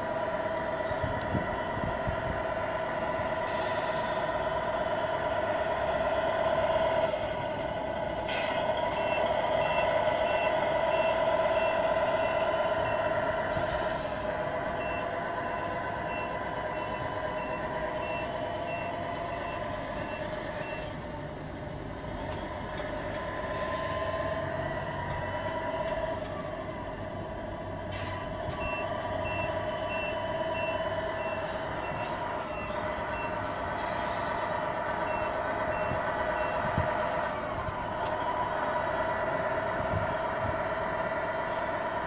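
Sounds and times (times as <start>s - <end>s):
simulated truck engine: 0.0s - 42.0s
short air hisses: 3.5s - 4.3s, 13.5s - 14.3s, 33.8s - 34.5s
reversing beeper: 8.3s - 21.0s, 27.8s - 37.2s.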